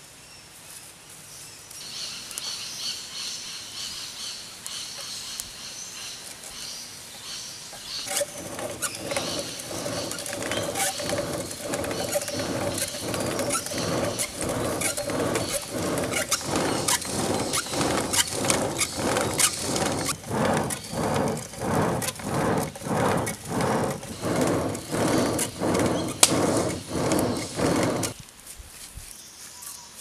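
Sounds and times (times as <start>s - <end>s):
fire crackling: 8.1s - 28.2s
hand-driven blower whirring: 8.1s - 28.2s.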